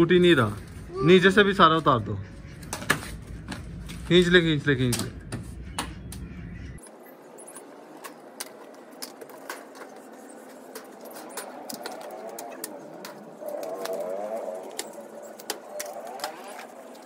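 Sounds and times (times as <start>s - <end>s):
pigeons cooing: 10.6s - 17.0s.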